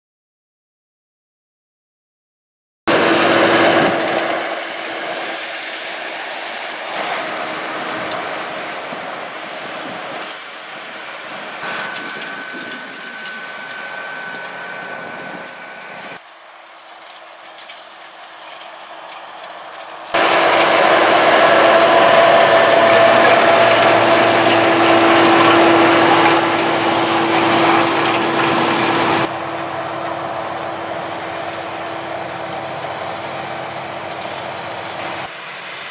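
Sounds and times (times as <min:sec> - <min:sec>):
tractor engine humming: 0:02.9 - 0:35.9.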